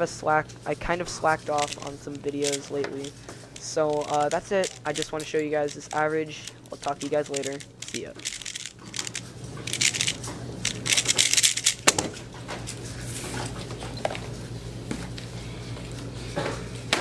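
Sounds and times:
room hum: 0:00.0 - 0:17.0
puzzle cube rattling clicks: 0:01.2 - 0:11.9.

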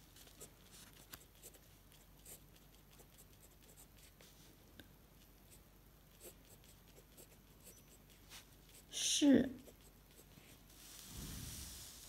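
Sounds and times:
pen nib scratching on paper: 0:00.2 - 0:04.2, 0:05.5 - 0:09.0, 0:09.6 - 0:10.4.

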